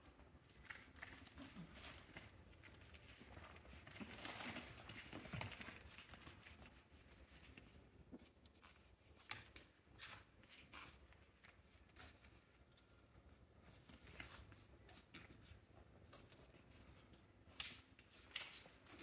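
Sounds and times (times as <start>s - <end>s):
puppies scratching and rustling: 0.0s - 19.0s.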